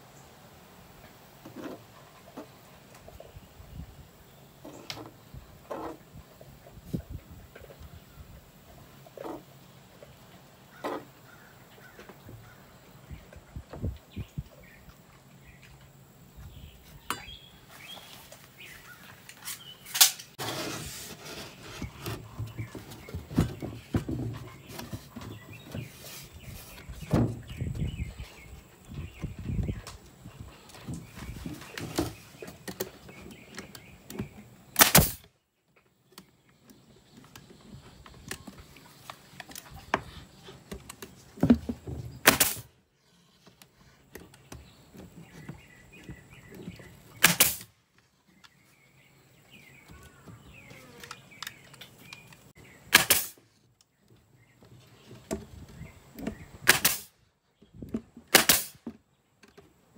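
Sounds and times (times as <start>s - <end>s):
handling and shuffling noise: 17.6s - 28.8s
nail gun firing: 34.8s - 35.3s, 42.2s - 42.7s, 47.2s - 47.7s, 52.9s - 53.4s, 56.6s - 57.2s, 58.3s - 58.8s.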